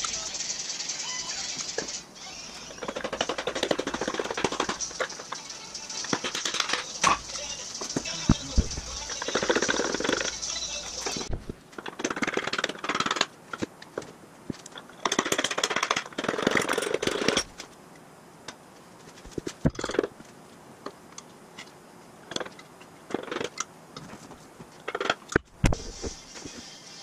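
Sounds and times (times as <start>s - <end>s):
tools rattling: 2.7s - 13.7s, 14.6s - 17.6s.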